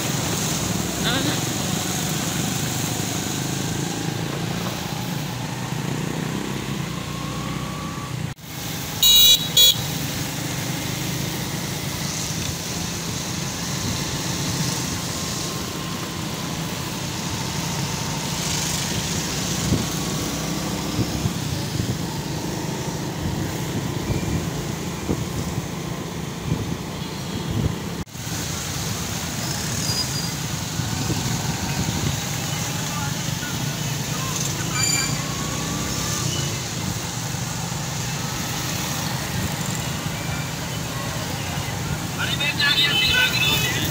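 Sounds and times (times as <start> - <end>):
motorbike engine and road noise: 0.0 - 43.9
vehicle horn honking: 9.0 - 9.9.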